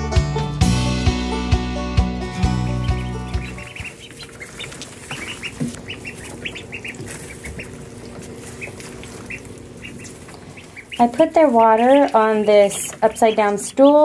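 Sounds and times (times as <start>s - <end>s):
background music: 0.0s - 4.0s
ducklings peeping: 2.0s - 14.0s.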